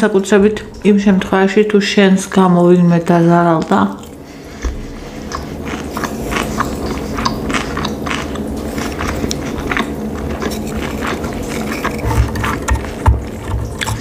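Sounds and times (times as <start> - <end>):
chewing with mouth clicks: 3.6 - 14.0.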